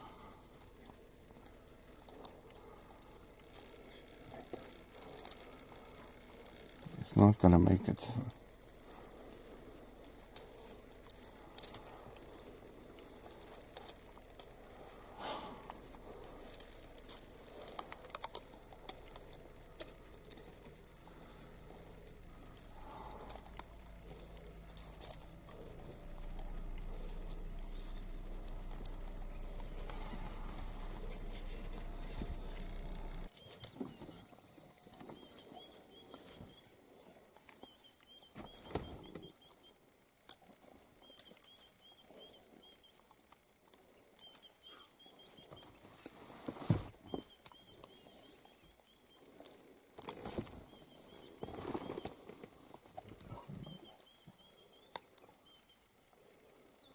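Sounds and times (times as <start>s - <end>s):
steady low hum: 0.0s - 56.9s
bird chirping: 14.8s - 39.8s, 41.0s - 45.9s, 47.0s - 49.6s, 50.4s - 52.4s, 53.1s - 56.9s.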